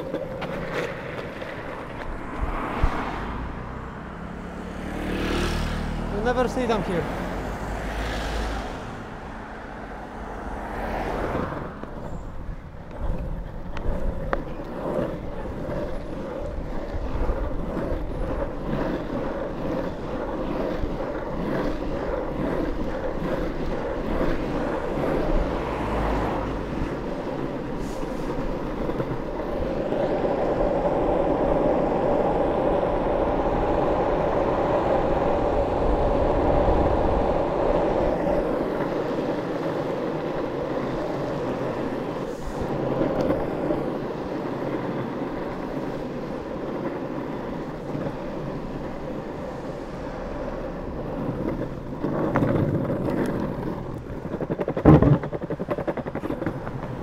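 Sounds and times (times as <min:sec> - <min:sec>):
longboard wheels rolling on asphalt: 0:00.0 - 0:57.0.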